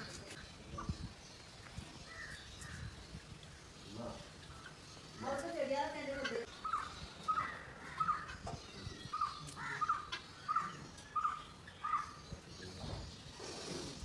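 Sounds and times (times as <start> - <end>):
bird calling: 4.5 - 13.8.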